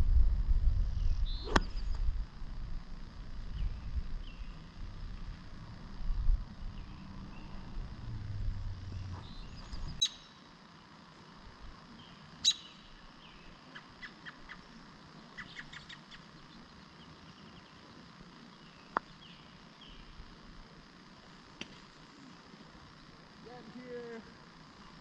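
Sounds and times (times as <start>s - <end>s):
small bird chirps: 1.0s - 2.0s, 8.9s - 10.4s, 12.0s - 17.8s
putter striking golf ball: 1.5s - 1.9s.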